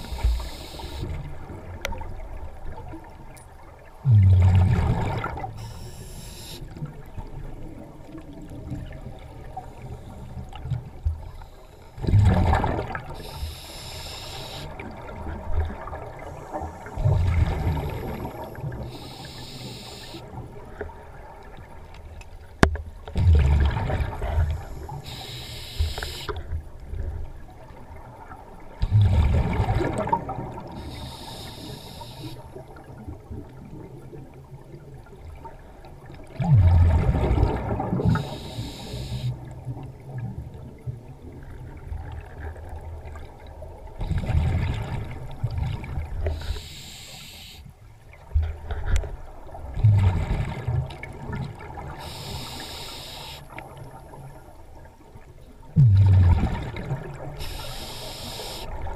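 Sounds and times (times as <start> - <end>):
regulator hissing inhale: 0.0 - 1.2, 5.6 - 6.7, 13.2 - 14.8, 16.2 - 17.1, 17.7 - 20.2, 24.4 - 26.4, 30.8 - 32.5, 38.1 - 39.4, 46.3 - 47.7, 51.9 - 53.6, 57.4 - 58.8
exhaled bubbles rushing: 4.0 - 5.7, 12.0 - 13.2, 14.7 - 18.9, 23.2 - 24.9, 28.8 - 30.8, 36.3 - 38.4, 48.4 - 52.0, 55.8 - 57.8.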